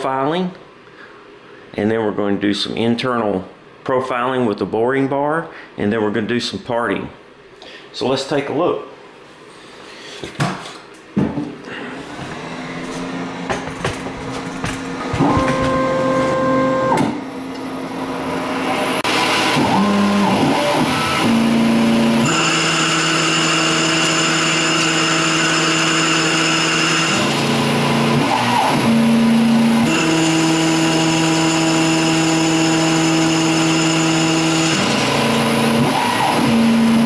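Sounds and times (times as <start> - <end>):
lathe motors whining: 12.0 - 37.0.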